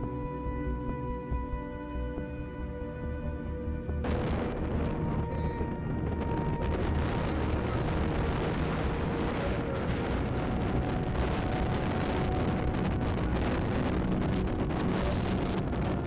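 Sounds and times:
wind on microphone: 0:04.0 - 0:16.0.

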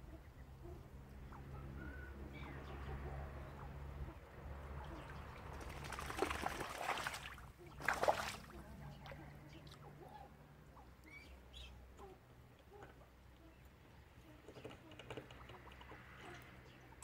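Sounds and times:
faint bird chirps: 0:00.0 - 0:03.2, 0:08.9 - 0:17.0
low steady hum: 0:00.0 - 0:17.0
duck splashing in water: 0:04.6 - 0:09.8.

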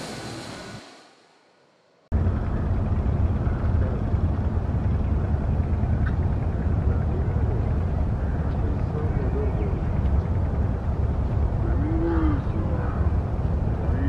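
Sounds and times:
hiss: 0:00.0 - 0:01.6
low outdoor rumble: 0:00.0 - 0:14.0.

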